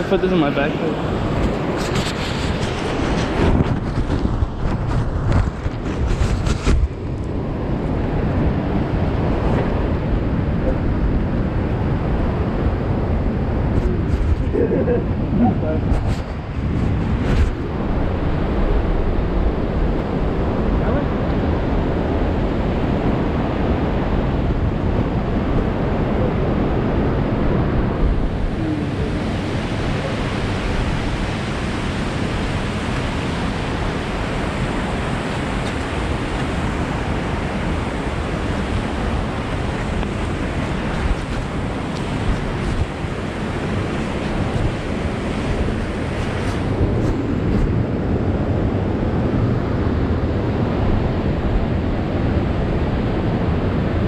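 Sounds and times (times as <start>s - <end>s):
wind noise on microphone: 0.0s - 54.0s
waterfall roaring: 18.0s - 49.9s.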